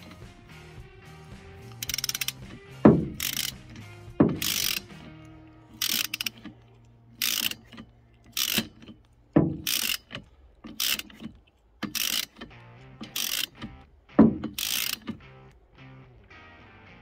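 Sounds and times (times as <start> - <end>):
ratchet wrench clicking: 0.0 - 0.3, 1.6 - 15.5
dull knocks: 2.8 - 3.2, 4.1 - 4.5, 9.4 - 9.7, 14.1 - 14.6.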